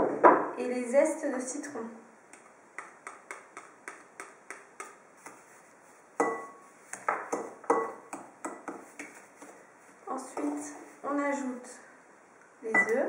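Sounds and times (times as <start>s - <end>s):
spatula knocking a mixing bowl: 6.2s - 9.2s.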